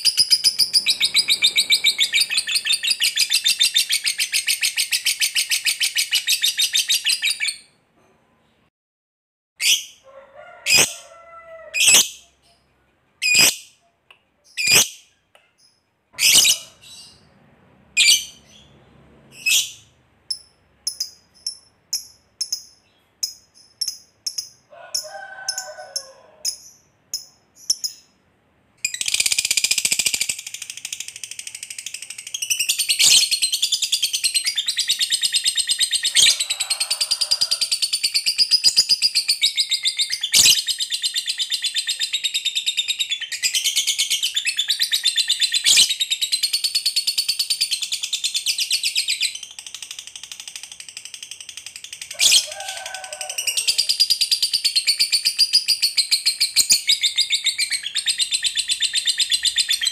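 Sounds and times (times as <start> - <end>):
lovebird rapid chatter trill: 0.0 - 6.5, 28.9 - 36.4
lovebird chirping: 0.0 - 7.8, 11.7 - 17.4, 18.0 - 25.0, 25.6 - 28.2, 28.8 - 50.1, 53.8 - 59.9.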